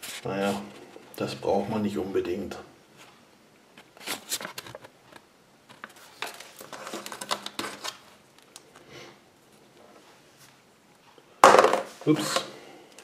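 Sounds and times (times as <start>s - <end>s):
light paper rustles: 3.8s - 8.6s
paper crinkling: 5.7s - 8.8s.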